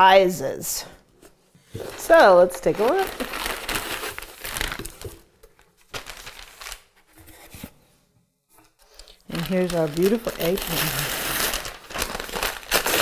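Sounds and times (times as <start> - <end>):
wrapping paper crinkling: 1.8 - 7.2, 8.9 - 13.0.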